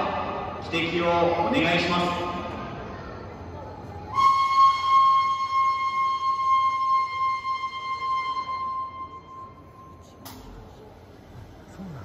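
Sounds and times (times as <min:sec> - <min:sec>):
locomotive whistle blowing: 0:04.1 - 0:10.0.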